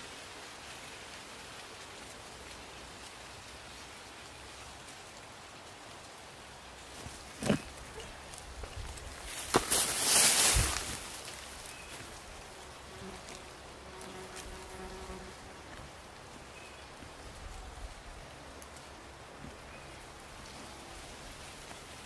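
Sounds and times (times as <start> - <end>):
steady outdoor hiss: 0.0 - 22.0
hands digging in loose soil: 6.9 - 12.3.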